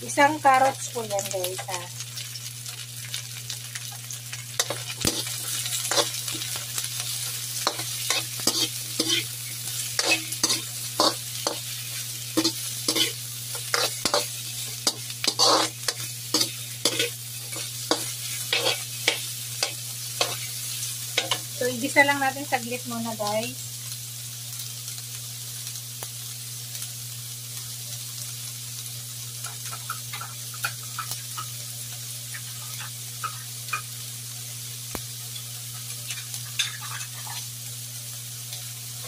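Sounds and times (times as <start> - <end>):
vegetables sizzling in oil: 0.0 - 39.0
metal ladle scraping a wok: 12.4 - 19.2.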